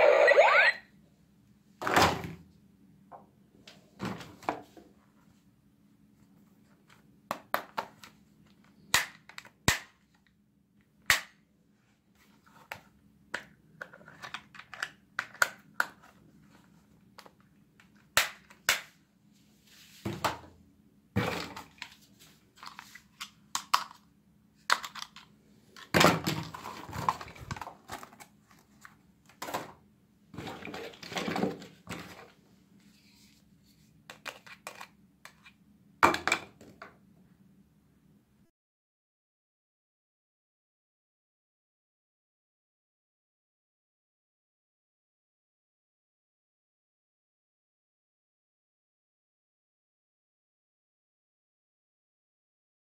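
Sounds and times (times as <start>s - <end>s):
plastic toys clacking: 24.7s - 25.9s.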